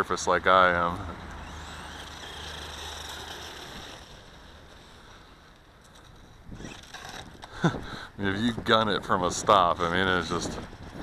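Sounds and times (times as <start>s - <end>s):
electric motor whining: 1.0s - 7.9s.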